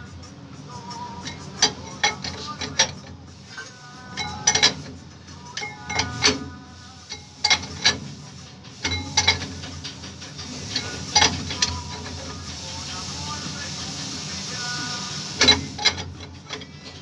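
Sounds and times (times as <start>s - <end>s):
metal-on-metal clanks with ringing: 1.2s - 4.9s, 5.5s - 6.5s, 7.1s - 8.0s, 8.8s - 12.2s.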